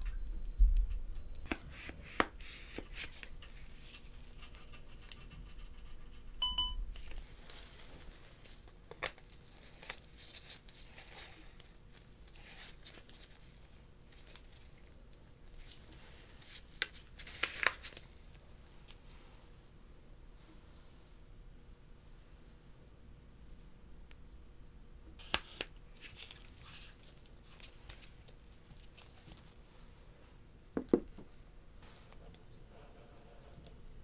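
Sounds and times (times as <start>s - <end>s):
short electronic beep: 6.4s - 6.8s.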